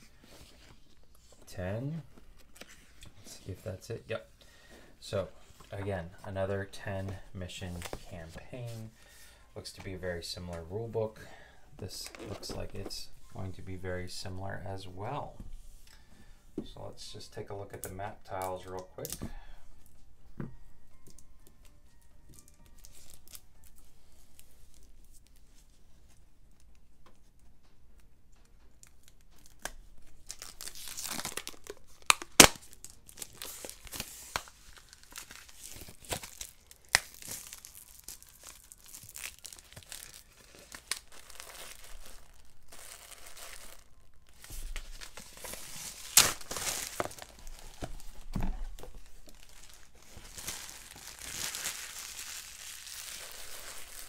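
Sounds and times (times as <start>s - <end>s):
plastic wrapping crinkling: 28.4s - 54.0s.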